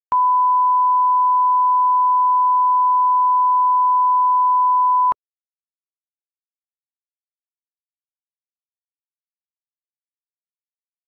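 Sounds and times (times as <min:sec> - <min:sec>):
steady test tone beep: 0:00.1 - 0:05.2.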